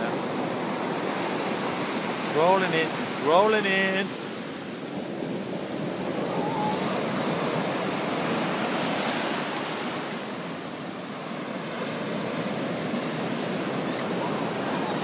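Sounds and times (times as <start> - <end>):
waves washing over sand: 0.0 - 15.0.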